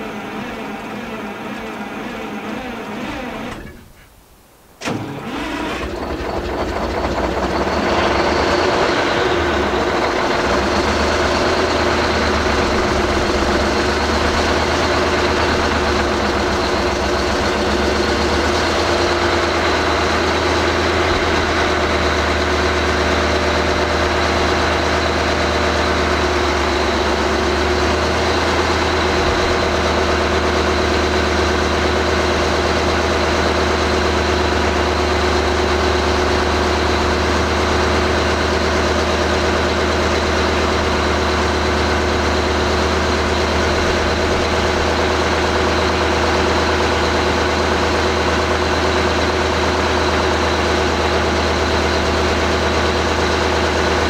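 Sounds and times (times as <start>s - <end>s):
diesel engine starting and idling: 0.0s - 54.0s.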